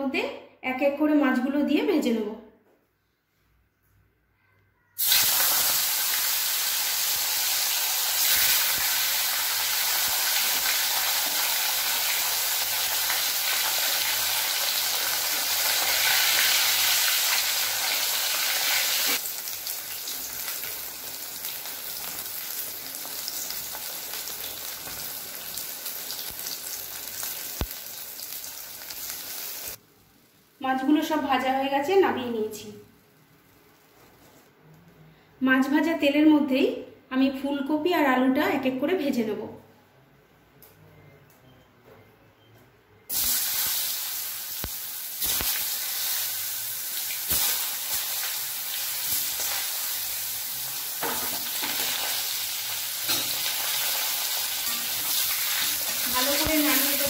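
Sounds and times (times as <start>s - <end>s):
fish sizzling in hot oil: 5.0s - 29.8s, 43.1s - 57.0s.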